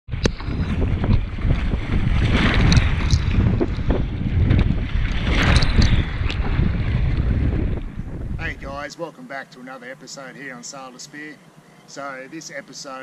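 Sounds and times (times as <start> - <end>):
wind buffeting microphone: 0.1 - 8.9
water rushing along a hull: 0.1 - 13.0.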